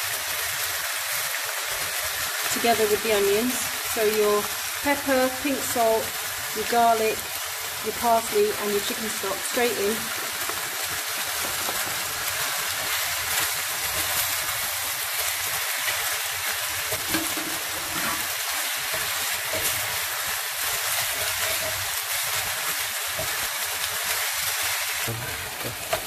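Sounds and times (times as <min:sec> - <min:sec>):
food sizzling in oil: 0:00.0 - 0:26.0
wooden spoon scraping: 0:10.4 - 0:26.0.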